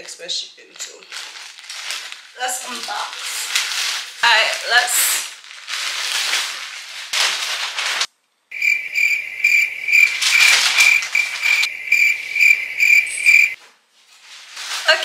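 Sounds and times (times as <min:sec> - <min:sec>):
plastic bag rustling: 0:00.7 - 0:08.1, 0:09.5 - 0:12.5, 0:13.3 - 0:15.0
cricket chirp sound effect: 0:08.5 - 0:13.6.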